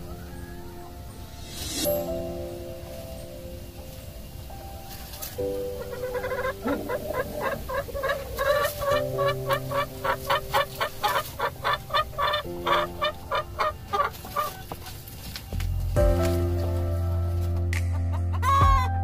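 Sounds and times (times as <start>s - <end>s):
hen clucking: 4.8s - 15.6s, 18.1s - 18.9s.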